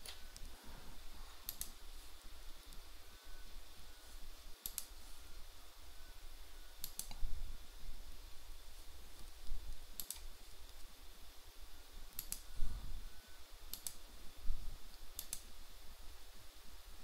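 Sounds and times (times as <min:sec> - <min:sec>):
faint low hum: 0:00.0 - 0:17.0
computer mouse clicking: 0:01.4 - 0:01.8, 0:04.6 - 0:05.0, 0:06.8 - 0:07.2, 0:09.2 - 0:10.8, 0:12.1 - 0:12.5, 0:13.7 - 0:14.1, 0:14.9 - 0:15.5.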